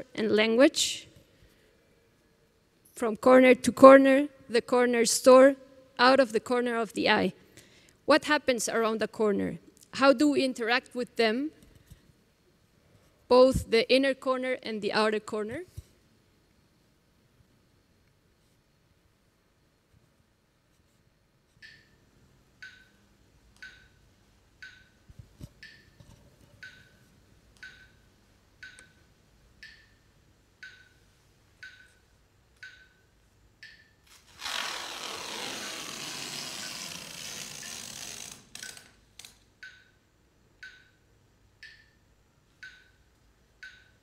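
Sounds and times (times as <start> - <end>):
sharp regular ticks: 33.6 - 39.9
tape rasping off roll: 34.1 - 39.0.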